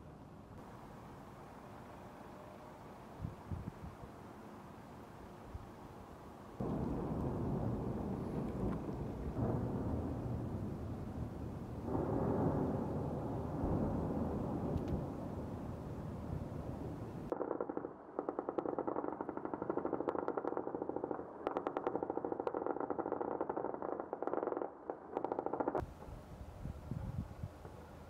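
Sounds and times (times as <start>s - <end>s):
rough continuous rumbling: 6.6s - 17.3s.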